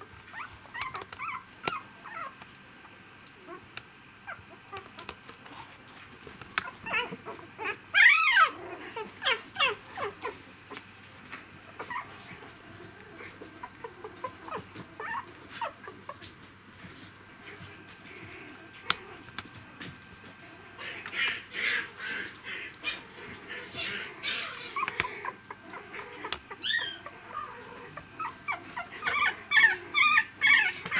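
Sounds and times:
puppies whining and squeaking: 0:00.1 - 0:02.4, 0:03.5 - 0:05.8, 0:06.6 - 0:10.8, 0:11.7 - 0:16.4, 0:20.4 - 0:30.9.

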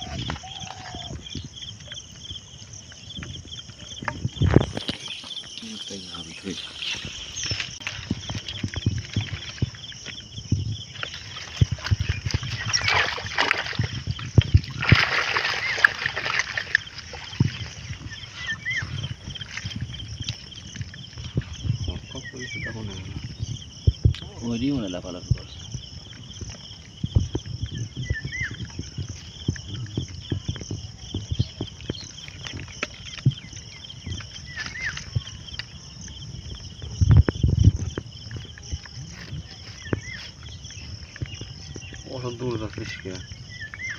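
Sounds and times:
insects chirping in pulsing trill: 0:00.0 - 0:43.9
fishing net rustling: 0:03.8 - 0:23.0, 0:26.0 - 0:35.8
water splashing off fish trap: 0:11.0 - 0:17.9
low thumps: 0:16.8 - 0:34.4.

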